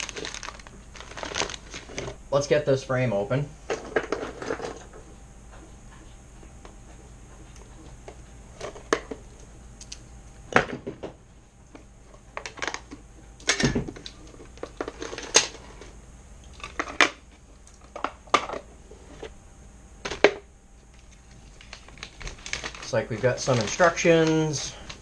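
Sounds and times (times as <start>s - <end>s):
plastic bags rustling: 0.0s - 2.2s, 20.9s - 25.0s.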